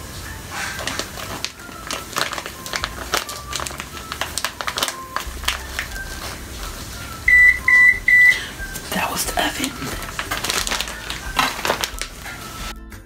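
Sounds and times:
plastic bag crinkling: 0.0s - 7.2s, 8.5s - 12.7s
sugar pouring into cup: 0.8s - 7.1s, 9.4s - 12.7s
high electronic beeps: 7.2s - 8.5s.

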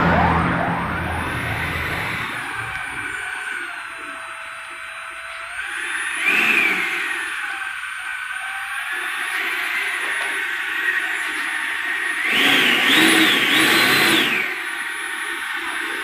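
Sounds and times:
electric ducted fan whining: 0.0s - 9.3s.

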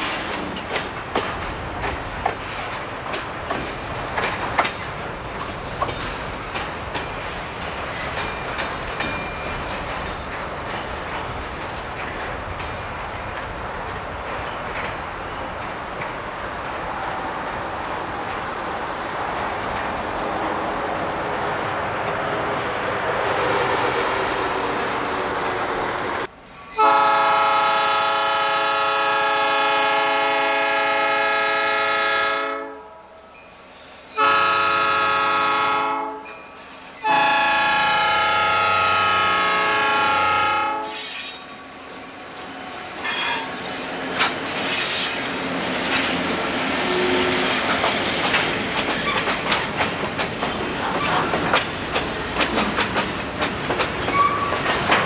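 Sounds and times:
wheels clattering over rail joints: 0.0s - 18.6s, 42.3s - 55.0s
freight cars rumbling: 0.0s - 26.5s, 41.4s - 55.0s
locomotive air horn blasts: 26.7s - 33.1s, 34.1s - 36.3s, 37.0s - 41.1s
wheel squeals: 54.0s - 54.6s.

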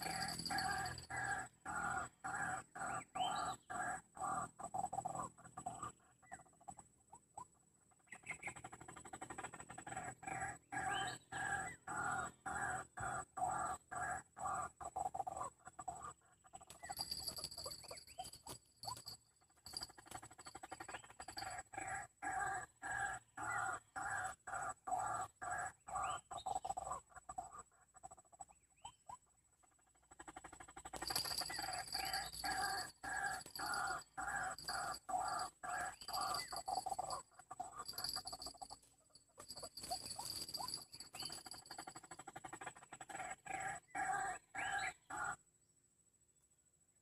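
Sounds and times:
waterhen calls: 30.8s - 38.4s.

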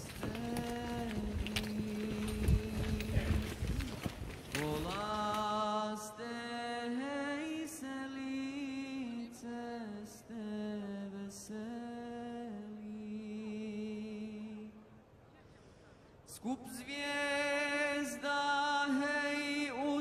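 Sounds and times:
person singing unaccompanied chant: 0.0s - 3.7s, 4.6s - 14.8s.

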